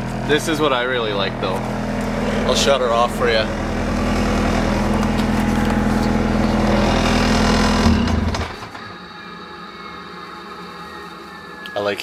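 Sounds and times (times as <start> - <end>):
diesel engine idling: 0.0 - 8.7.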